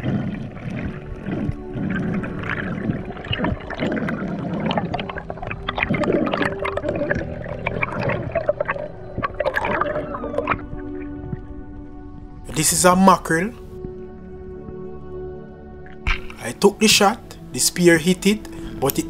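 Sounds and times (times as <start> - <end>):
crackle of clicks and bubbles: 0.0 - 12.5, 13.5 - 16.4, 18.4 - 19.0
water gurgling and sloshing: 0.0 - 19.0.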